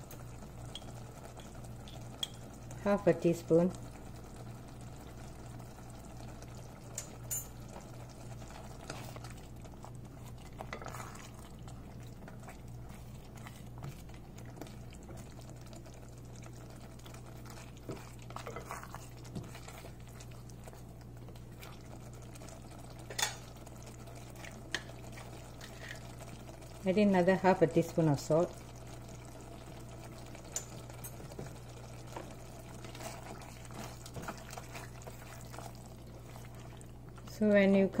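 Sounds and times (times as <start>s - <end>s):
curry simmering: 0.0s - 38.0s
steady low hum: 0.0s - 38.0s
spoon stirring and clinking: 0.7s - 2.4s, 17.9s - 19.7s.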